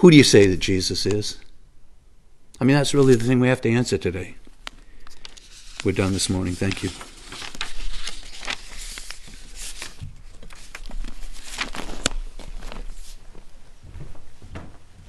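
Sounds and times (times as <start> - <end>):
papers rustling: 4.4 - 13.6
footsteps walking away: 10.0 - 15.0.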